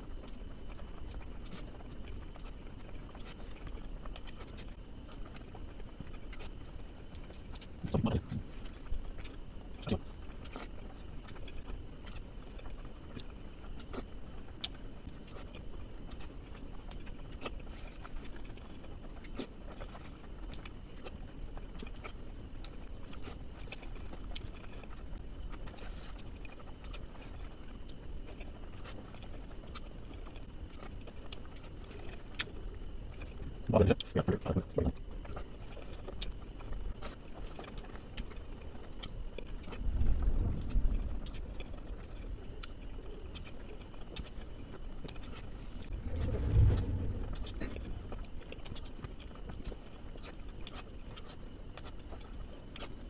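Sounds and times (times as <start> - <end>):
short low thump: 45.8 - 48.4.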